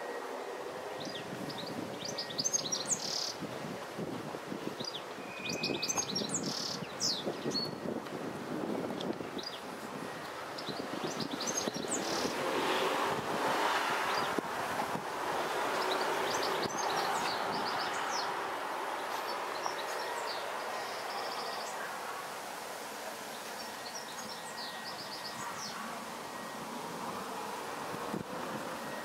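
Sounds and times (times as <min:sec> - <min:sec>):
outdoor background hiss: 0:00.0 - 0:29.0
small birds chirping: 0:01.0 - 0:03.4, 0:04.8 - 0:07.8, 0:09.4 - 0:09.7, 0:10.5 - 0:12.4, 0:15.7 - 0:21.9, 0:23.3 - 0:26.5.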